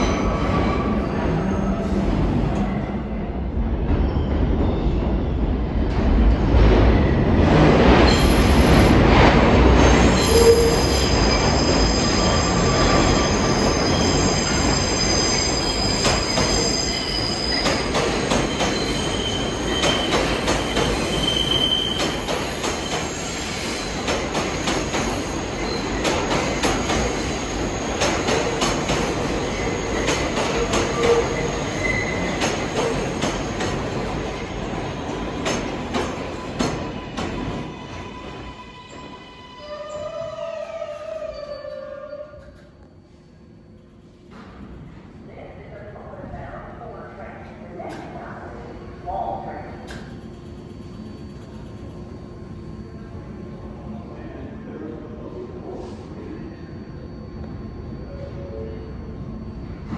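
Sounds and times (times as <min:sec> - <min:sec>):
subway train rumbling: 0:00.0 - 0:59.9
train wheels squealing: 0:04.0 - 0:05.4, 0:09.8 - 0:43.8, 0:49.9 - 0:53.2, 0:54.2 - 0:59.9.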